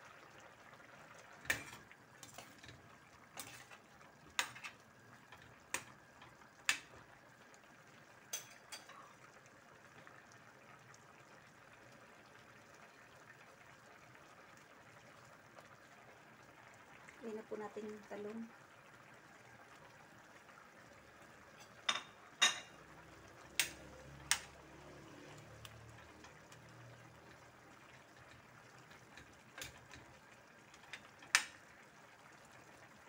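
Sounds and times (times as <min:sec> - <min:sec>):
liquid bubbling in pan: 0:00.0 - 0:33.0.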